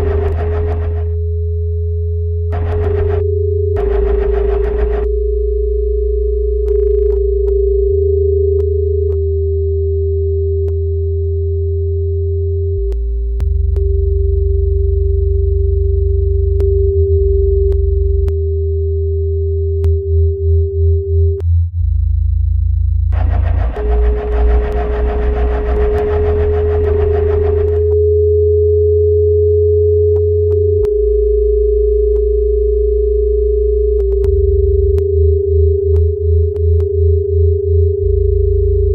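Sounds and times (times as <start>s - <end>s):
scattered clicks: 0.0s - 1.2s, 2.5s - 3.2s, 3.8s - 5.1s, 23.2s - 28.0s
deep bass tone: 0.0s - 38.9s
sine-like drone: 0.0s - 38.9s
sharp clicks: 3.8s - 5.1s.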